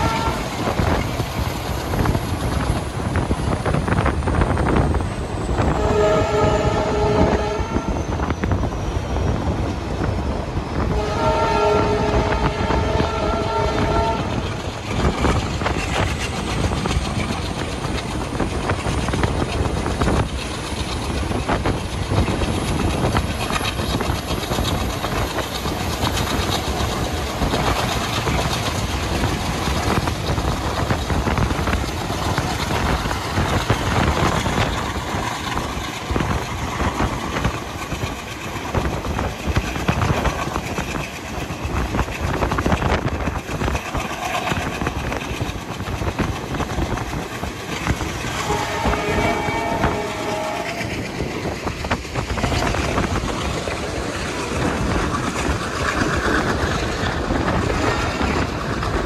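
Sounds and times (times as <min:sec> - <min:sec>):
diesel locomotive engine chugging: 0:00.0 - 0:59.0
train wheels clattering on rails: 0:00.0 - 0:59.0.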